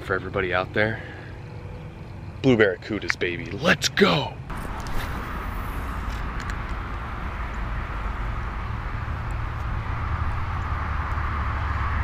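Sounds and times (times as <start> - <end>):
wind buffeting microphone: 4.5 - 12.0.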